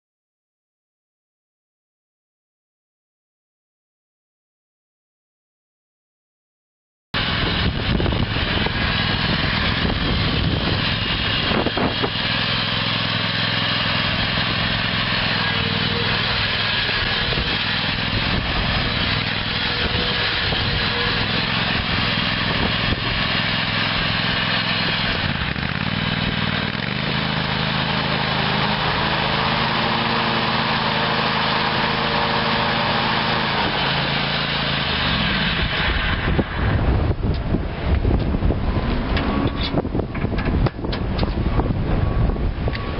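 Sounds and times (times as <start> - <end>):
small gasoline engine running: 7.2 - 37.6.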